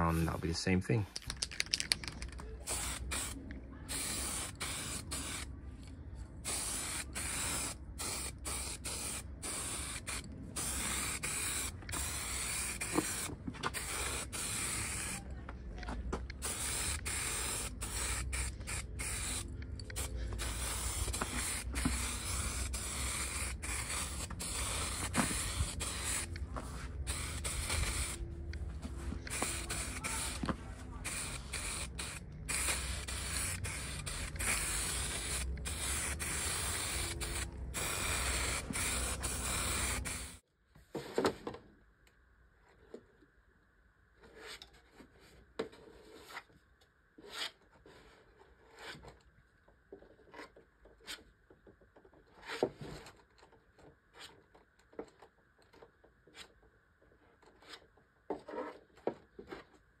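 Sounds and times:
aerosol spray can hissing: 2.6s - 5.5s, 6.5s - 15.2s, 16.4s - 28.2s, 29.3s - 40.4s.

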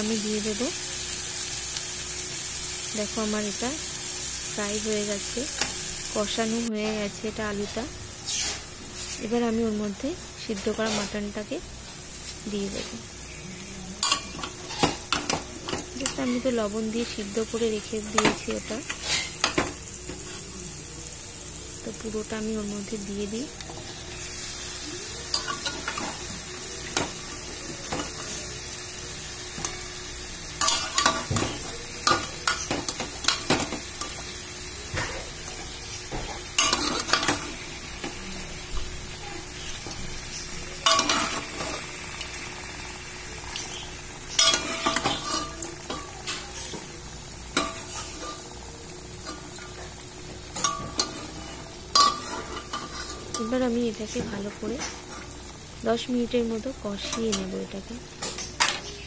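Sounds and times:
curry sizzling in a pan: 0.0s - 59.0s.

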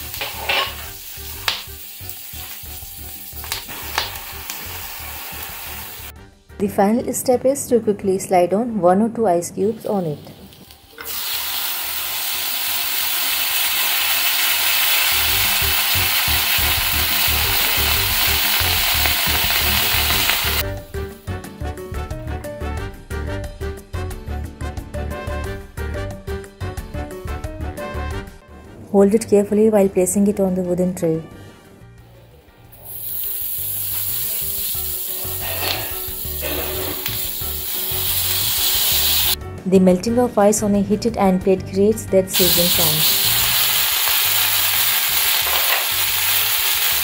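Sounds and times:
ice sizzling on hot metal plate: 0.0s - 6.1s, 10.5s - 20.6s, 32.8s - 39.4s, 42.4s - 47.0s.

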